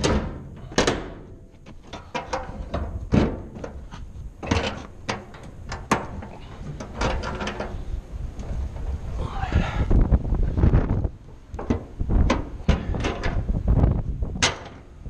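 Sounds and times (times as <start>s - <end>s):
metal door latches clanking: 0.0s - 3.8s, 14.4s - 14.9s.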